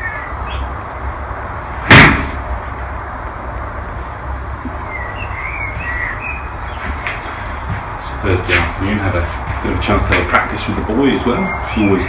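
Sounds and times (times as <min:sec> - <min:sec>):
bird warbling song: 0:00.0 - 0:01.1, 0:03.6 - 0:12.0
low rumble and hiss: 0:00.0 - 0:12.0.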